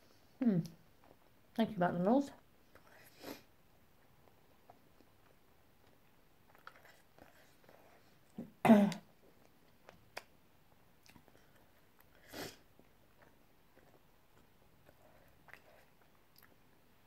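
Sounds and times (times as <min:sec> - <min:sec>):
breathy puff: 0:03.1 - 0:03.5, 0:12.2 - 0:12.6
chewing and mouth clicks: 0:04.0 - 0:08.0, 0:11.0 - 0:16.7
woman coughing: 0:08.6 - 0:09.0.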